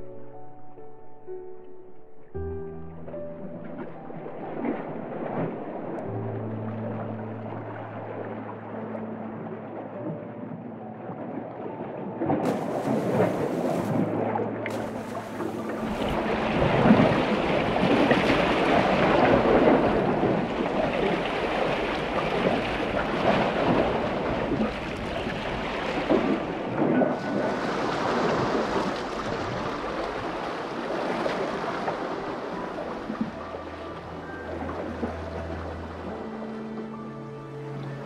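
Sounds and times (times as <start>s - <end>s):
waves splashing against rocks: 12.2s - 36.1s.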